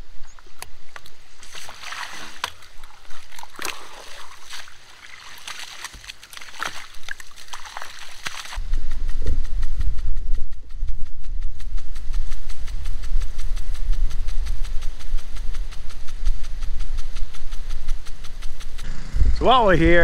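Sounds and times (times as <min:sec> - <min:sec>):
water splashing from hose: 0:00.9 - 0:08.6.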